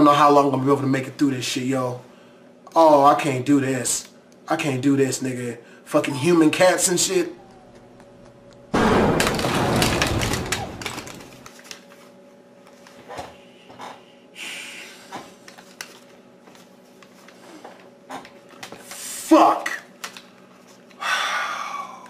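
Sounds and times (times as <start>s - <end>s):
loud crackling crunching noise: 8.8s - 11.6s.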